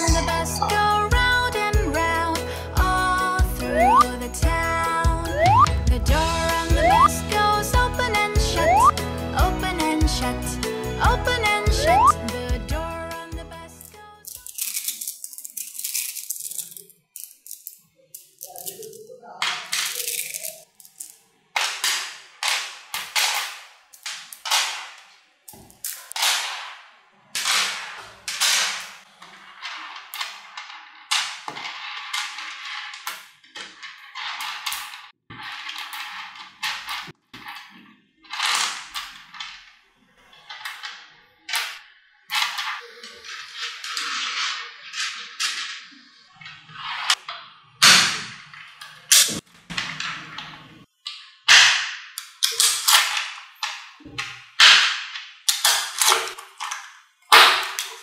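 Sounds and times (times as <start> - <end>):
magnetic balls clicking together: 3.8 - 4.2, 8.6 - 8.9, 11.8 - 12.2
magnet balls snapping together: 13.8 - 26.6, 51.1 - 58.0.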